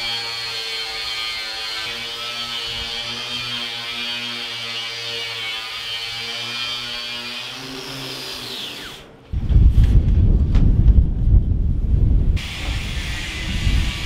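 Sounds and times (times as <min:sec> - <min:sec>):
angle grinder buffing steel: 0:00.0 - 0:09.1, 0:12.4 - 0:14.0.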